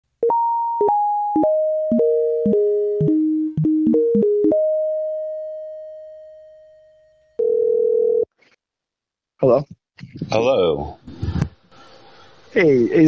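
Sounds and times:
synthesizer melody: 0.2s - 6.5s.

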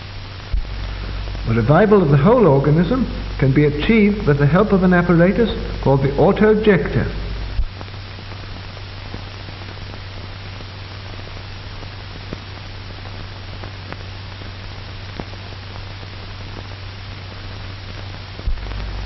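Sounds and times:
low hum: 0.0s - 8.1s, 18.4s - 19.0s
film hiss: 0.0s - 19.0s
faint clicks and pops: 17.9s - 19.0s.

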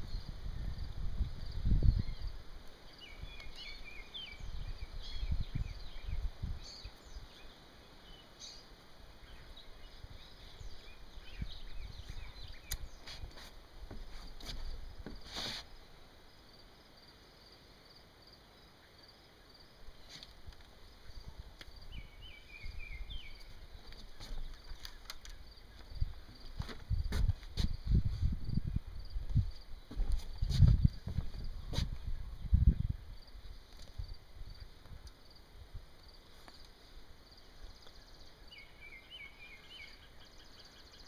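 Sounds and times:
birds chirping: 1.4s - 15.9s, 18.6s - 26.8s, 37.4s - 41.0s
burst of hiss: 15.2s - 15.7s.

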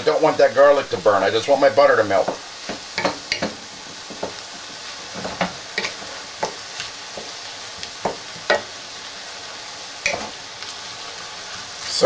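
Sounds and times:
vegetables sizzling in a pan: 0.0s - 12.0s
wooden spatula scraping a pan: 2.1s - 8.8s.

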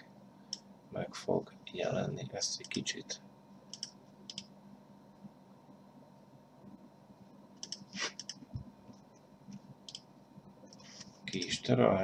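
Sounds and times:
computer mouse clicks: 3.7s - 4.5s, 7.6s - 8.6s, 9.8s - 10.1s.

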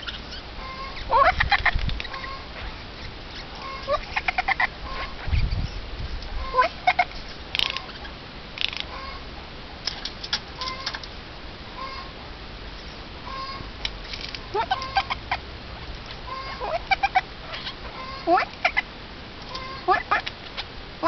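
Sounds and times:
jay clucking chattering calls: 0.0s - 5.7s, 6.3s - 9.4s, 12.8s - 15.5s, 16.2s - 20.7s.

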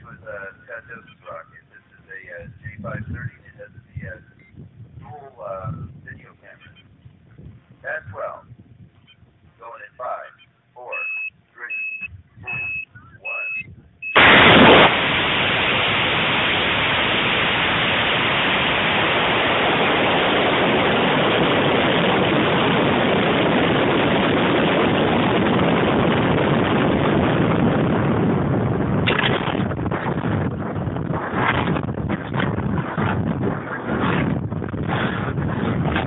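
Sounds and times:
short high beeps: 10.9s - 14.3s
rocket motor ignition blast: 14.1s - 36.0s
rocket motor rushing: 14.2s - 25.4s.

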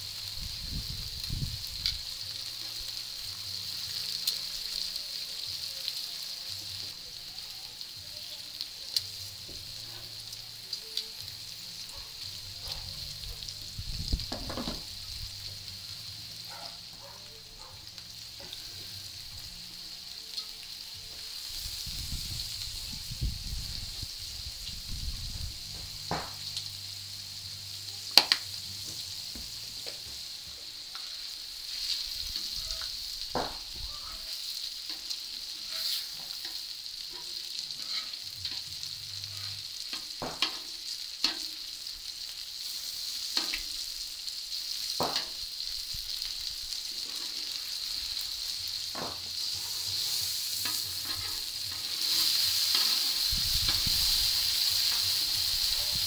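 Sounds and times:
meat sizzling on a griddle: 0.0s - 56.0s.

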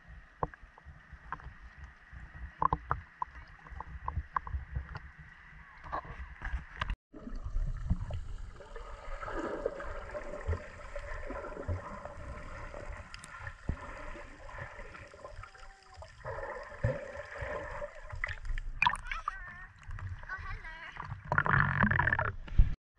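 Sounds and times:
water sloshing: 2.3s - 22.5s
bubbles: 7.1s - 20.3s, 21.0s - 22.5s.

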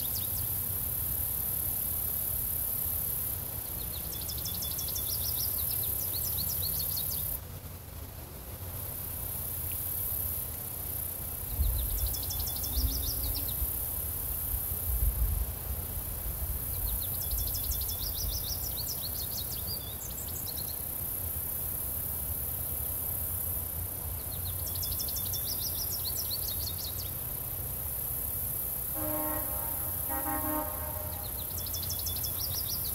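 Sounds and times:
bird song: 0.0s - 0.6s, 3.6s - 7.4s, 11.5s - 13.8s, 16.7s - 20.9s, 24.2s - 27.3s, 29.0s - 32.9s
insects hissing: 0.0s - 7.5s, 8.6s - 32.9s
horn: 28.9s - 31.6s
breeze rumbling: 28.9s - 31.8s.

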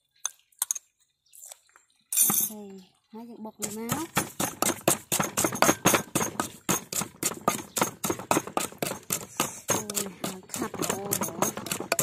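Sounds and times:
wooden pestle pounding in mortar: 3.6s - 12.0s.

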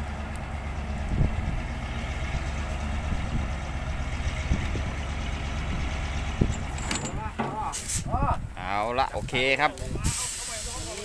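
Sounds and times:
diesel truck engine idling: 0.0s - 8.6s
short knocks: 6.4s - 7.8s.

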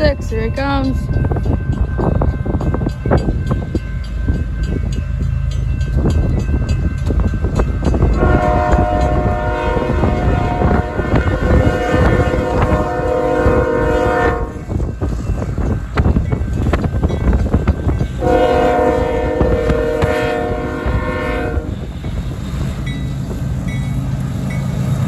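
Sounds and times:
locomotive air horn: 8.2s - 14.7s, 18.2s - 21.8s.

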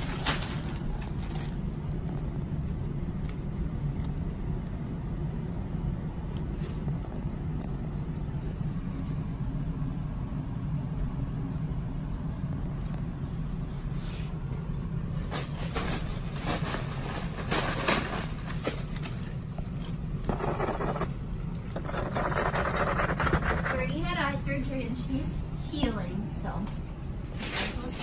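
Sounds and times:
plastic packing film crinkling: 0.0s - 3.4s, 15.4s - 20.0s
steady low hum: 0.0s - 28.0s.

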